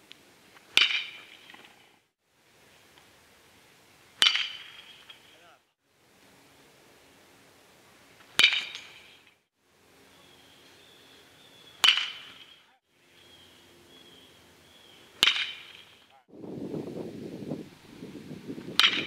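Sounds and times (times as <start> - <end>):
baseball bat cracking ball: 0.6 - 1.8, 4.2 - 5.4, 8.2 - 9.3, 11.8 - 12.6, 15.1 - 16.1, 18.7 - 19.0.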